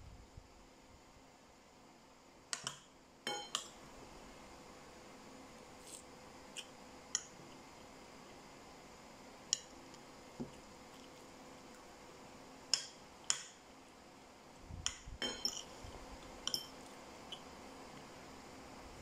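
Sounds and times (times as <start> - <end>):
cutlery clinking on ceramic bowls: 15.2 - 15.7, 16.4 - 16.9.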